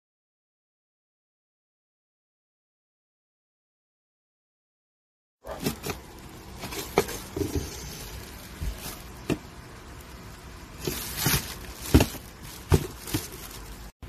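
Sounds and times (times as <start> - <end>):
plastic wrapping rustling: 5.4 - 14.0
cardboard box handling: 5.5 - 9.5, 10.8 - 13.8.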